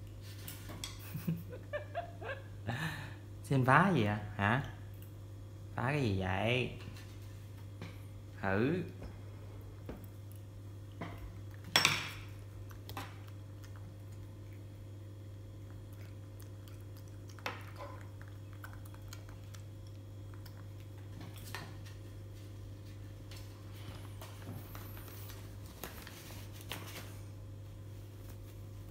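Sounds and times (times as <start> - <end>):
low steady hum: 0.0 - 28.9.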